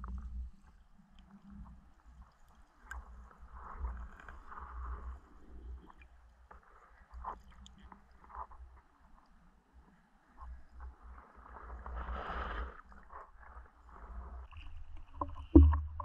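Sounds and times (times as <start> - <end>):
faint clicks: 0.0 - 5.1
underwater water rumble: 10.8 - 16.0.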